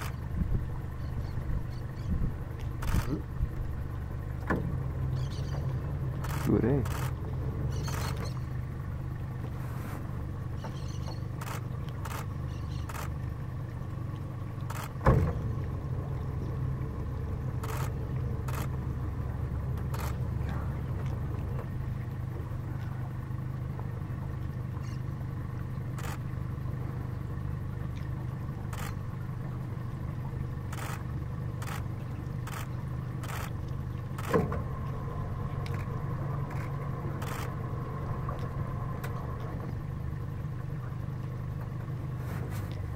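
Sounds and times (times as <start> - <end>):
boat engine idling: 0.0 - 42.9
sharp clicks: 2.6 - 3.2, 11.4 - 13.2.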